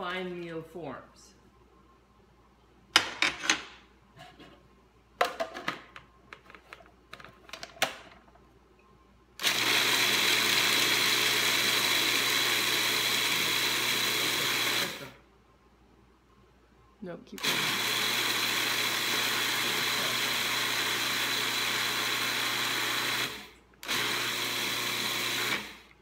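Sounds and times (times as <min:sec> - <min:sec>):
plastic clicks and clatter: 0:05.2 - 0:08.4
food processor grinding: 0:09.4 - 0:15.2, 0:17.4 - 0:25.9.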